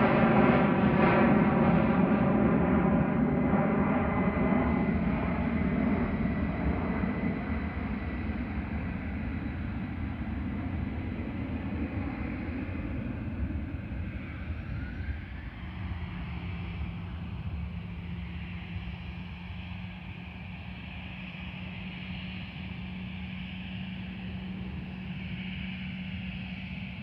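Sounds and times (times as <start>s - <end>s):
jet engines roaring overhead: 0.0s - 27.0s.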